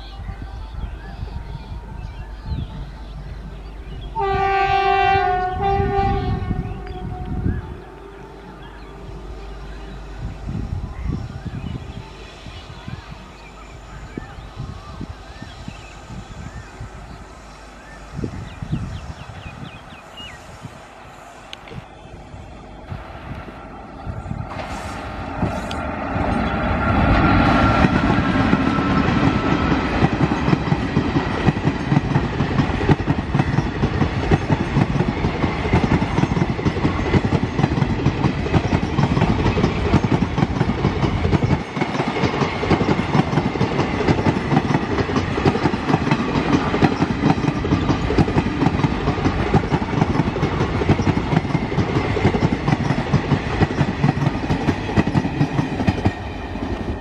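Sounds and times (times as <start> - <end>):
electric locomotive passing: 0.0 - 57.0
train wheels clacking over rail joints: 27.1 - 57.0.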